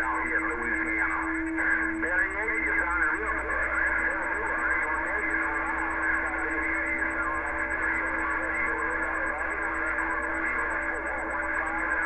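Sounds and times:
distorted radio voice: 0.0 - 12.0
radio static: 0.0 - 12.0.

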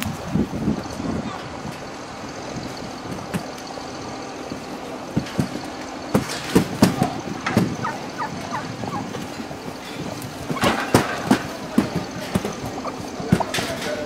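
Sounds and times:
steady background hum: 0.0 - 14.0
turkeys gobbling and calling: 6.8 - 13.7.

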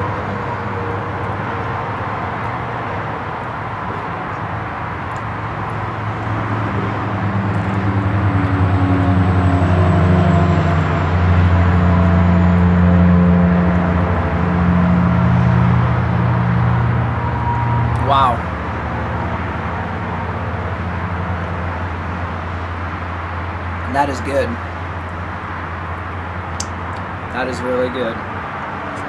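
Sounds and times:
engine low hum: 0.0 - 29.0.

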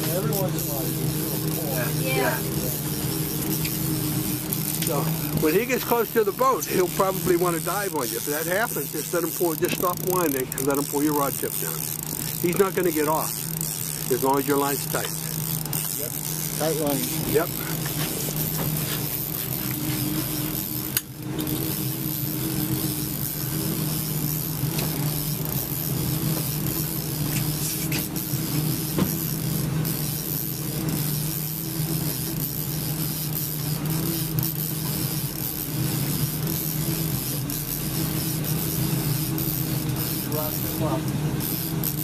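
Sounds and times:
boat engine humming: 0.0 - 42.0.

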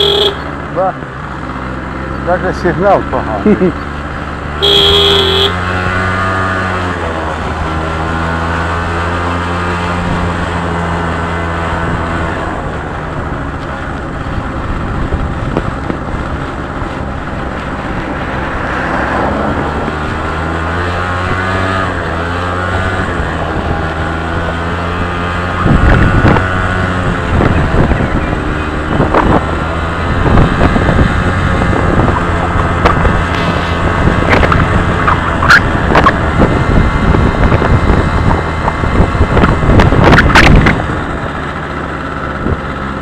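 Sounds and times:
vehicle engine running: 0.0 - 43.0
loud rushes of noise: 33.2 - 36.2.

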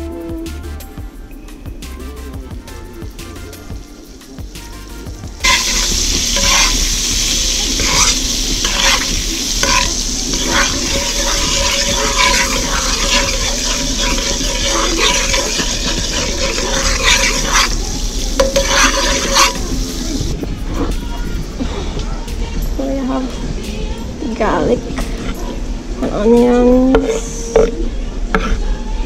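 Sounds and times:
butter sizzling in a wok: 2.8 - 21.3
metal spoon scraping a pan: 5.4 - 20.2, 26.9 - 27.8.

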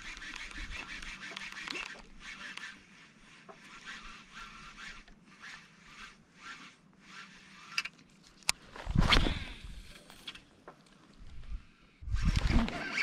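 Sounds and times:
sharp clicks: 0.0 - 2.7.

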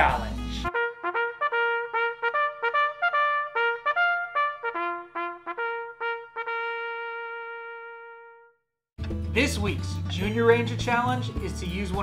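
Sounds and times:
solo trumpet jingle: 0.7 - 8.5.

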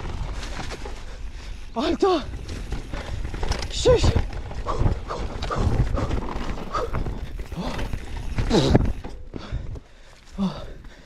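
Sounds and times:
bike chain and frame rattling: 0.0 - 11.0
rumble of tyres on dirt: 0.0 - 11.0
wind buffeting microphone: 2.3 - 9.8.

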